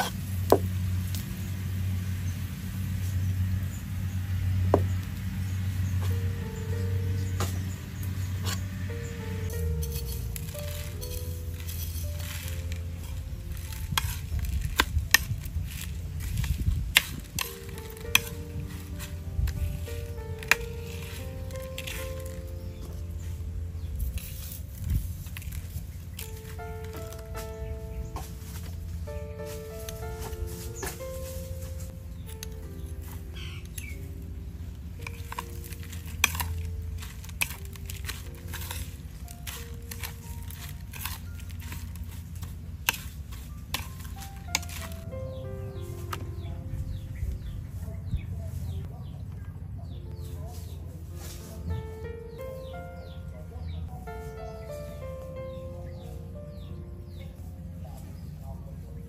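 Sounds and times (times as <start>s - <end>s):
spoon stirring crisp garlic: 9.5s - 24.6s, 25.2s - 27.3s, 32.2s - 45.1s.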